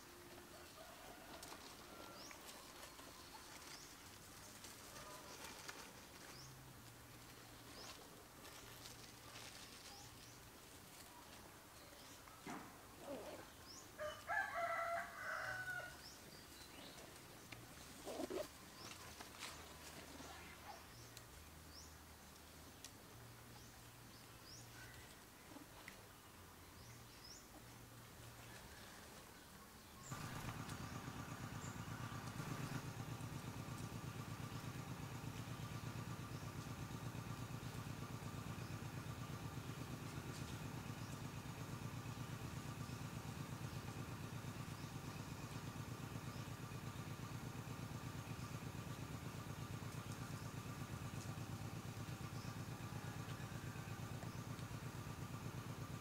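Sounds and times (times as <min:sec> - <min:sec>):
soft rustles: 0:01.3 - 0:11.6
rooster crowing: 0:14.0 - 0:16.0, 0:52.8 - 0:54.2
engine idling: 0:30.1 - 0:56.0.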